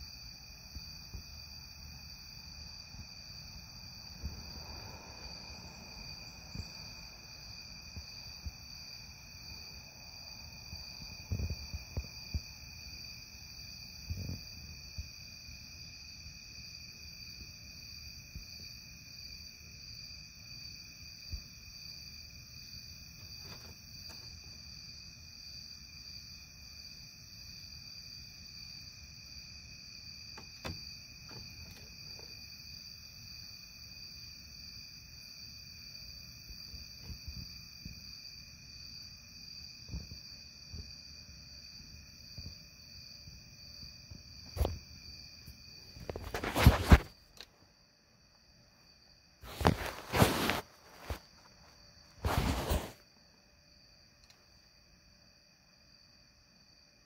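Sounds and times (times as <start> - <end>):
night insects chirring: 0.0 - 57.0
soft knocks and bumps: 30.4 - 32.4.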